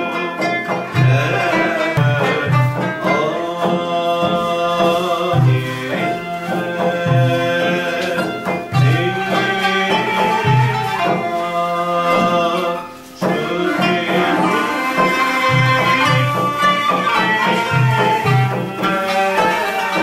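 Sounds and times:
slow frame drum beat: 0:00.0 - 0:20.0
sustained melodic lines: 0:13.0 - 0:18.3.

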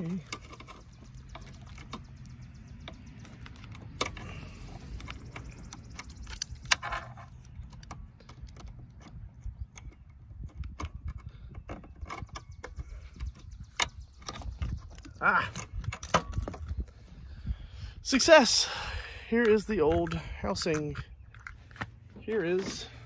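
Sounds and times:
plastic clicks and rattles: 0:00.2 - 0:16.8
steady low rumble: 0:12.4 - 0:23.0.

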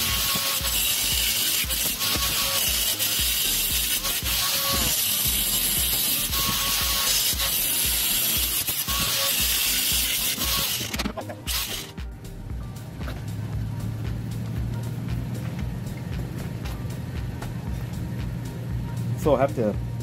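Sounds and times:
angle grinder cutting metal: 0:00.0 - 0:12.0.

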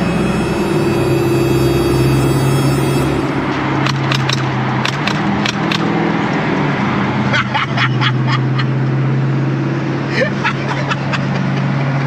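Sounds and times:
car engine droning inside cabin: 0:00.0 - 0:06.8.

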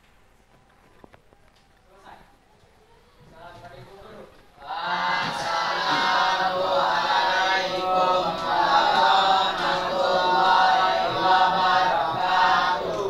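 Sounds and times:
voices chanting in unison: 0:04.6 - 0:13.0.

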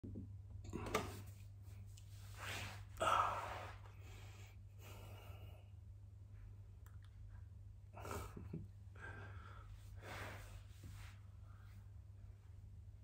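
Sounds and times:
steady low hum: 0:00.0 - 0:13.0
man breathing out: 0:03.0 - 0:05.6.

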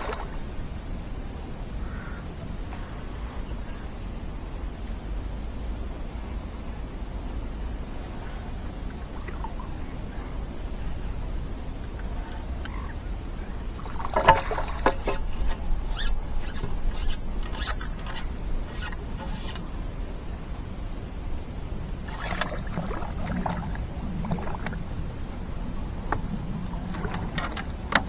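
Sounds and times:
low outdoor rumble: 0:00.0 - 0:28.0
fishing tackle rustling and clicking: 0:13.9 - 0:19.7.

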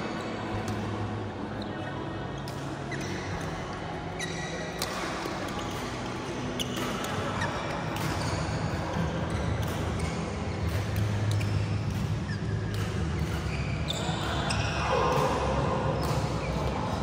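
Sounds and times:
shoes squeaking on court: 0:00.1 - 0:17.0
rackets striking shuttlecock: 0:04.6 - 0:16.8.

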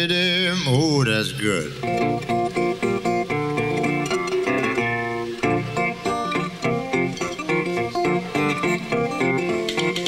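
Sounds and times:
acoustic guitar plucking: 0:00.0 - 0:10.0.

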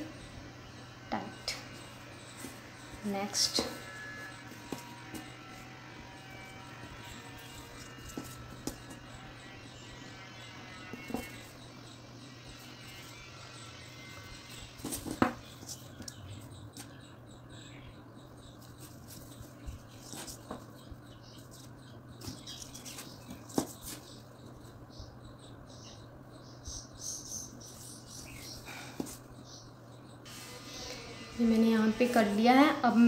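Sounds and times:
yarn rustling and scratching: 0:18.6 - 0:24.4.

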